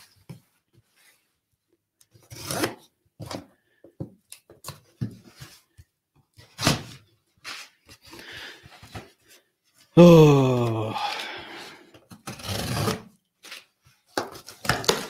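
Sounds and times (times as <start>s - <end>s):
cardboard box being torn open: 12.2s - 13.1s.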